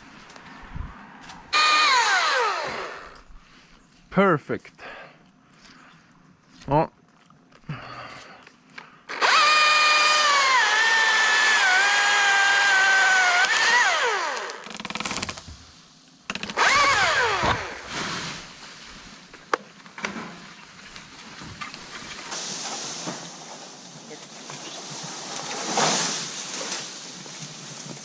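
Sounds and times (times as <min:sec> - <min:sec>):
chainsaw cutting wood: 0:01.5 - 0:03.3, 0:09.1 - 0:15.2, 0:16.3 - 0:18.2.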